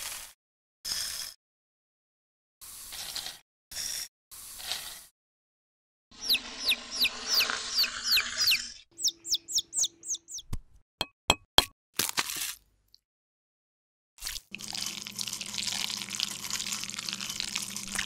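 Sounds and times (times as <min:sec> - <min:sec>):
chicken peeping: 0:06.2 - 0:10.5.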